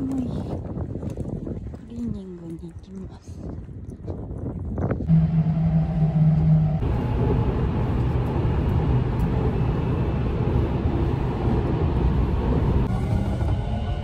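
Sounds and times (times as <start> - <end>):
train rumbling at speed: 5.0 - 14.0
rushing noise: 5.1 - 14.0.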